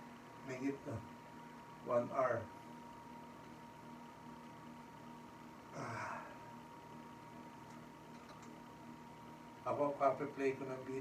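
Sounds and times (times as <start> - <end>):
faint steady hum: 0.0 - 11.0
man grunting: 5.7 - 6.5.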